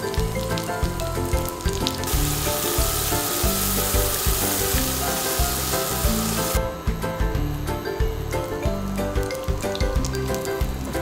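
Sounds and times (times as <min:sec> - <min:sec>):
butter sizzling in a frying pan: 0:00.0 - 0:06.6
background music with steady beat: 0:00.0 - 0:11.0.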